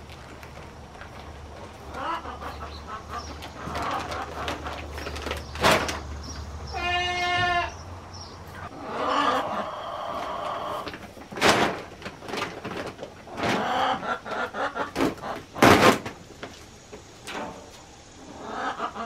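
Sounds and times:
goat bleating: 6.7s - 7.8s.

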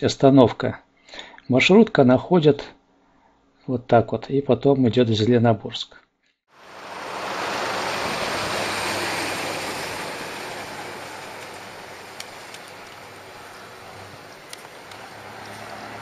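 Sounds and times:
minibus passing and pulling away: 6.6s - 16.0s.

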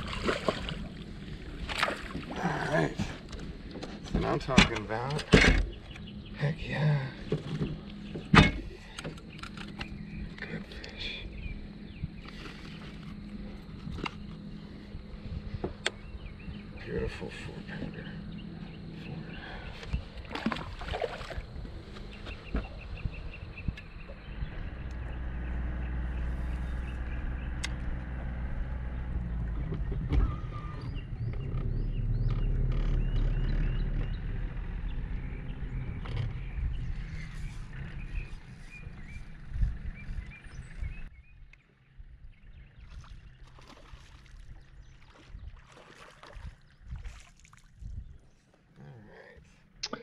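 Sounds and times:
water lapping against boat hull: 0.0s - 6.4s, 7.0s - 24.4s, 42.7s - 50.0s
low wind rumble: 0.0s - 49.8s
electric trolling motor hum: 21.3s - 41.0s.

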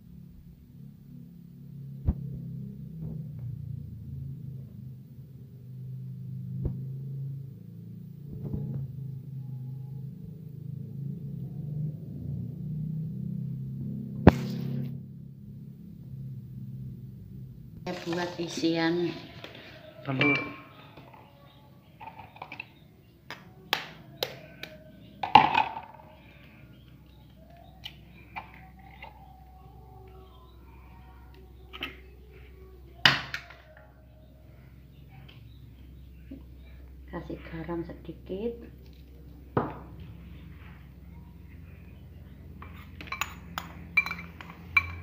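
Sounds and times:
metal spoon clinking plastic cup: 42.6s - 45.0s.

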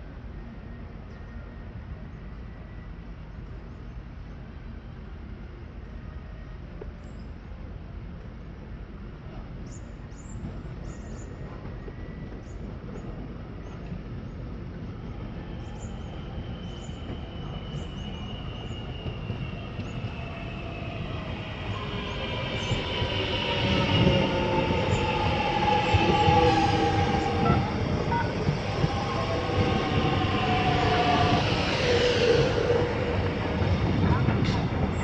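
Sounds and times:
wheels rumbling on rail: 6.7s - 35.0s
train traction motors whining: 15.8s - 35.0s.

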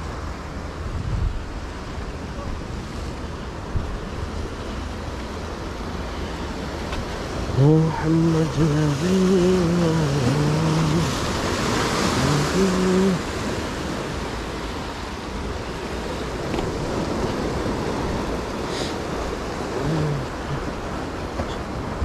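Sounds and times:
sea waves breaking over rocks: 0.0s - 22.0s
man's voice: 7.4s - 11.3s, 12.0s - 13.4s, 19.8s - 20.8s.

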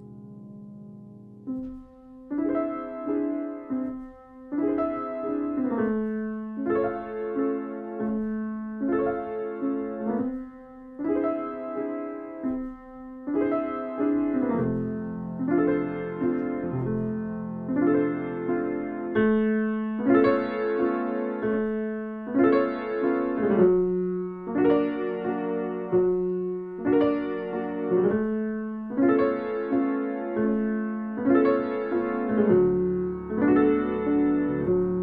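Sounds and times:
solo grand piano: 0.0s - 35.0s.

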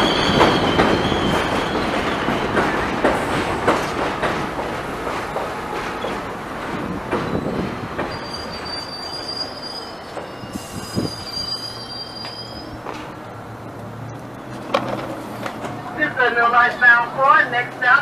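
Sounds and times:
train wheels clattering: 0.0s - 13.1s
low steady train hum: 0.0s - 18.0s
squeal of wheels and brakes: 7.3s - 12.8s.

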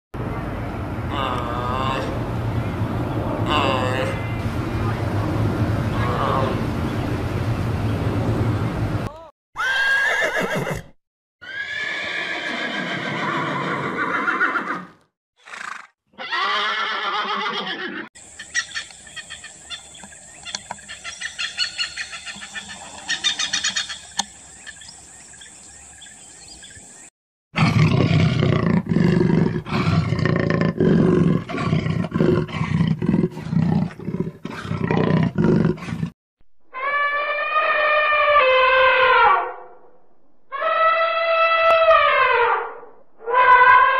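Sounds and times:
loud rough repeated animal calls: 36.7s - 39.7s, 40.5s - 43.9s
animal call falling in pitch: 36.7s - 39.8s, 40.5s - 43.9s.

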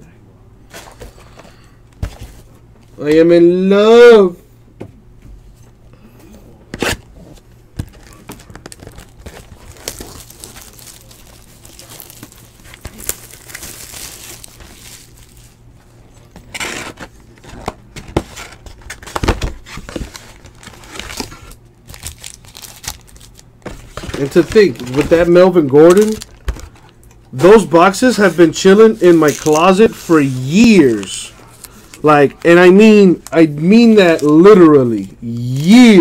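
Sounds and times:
plastic wrap crinkling: 7.8s - 17.8s, 18.5s - 27.0s, 27.8s - 36.0s.

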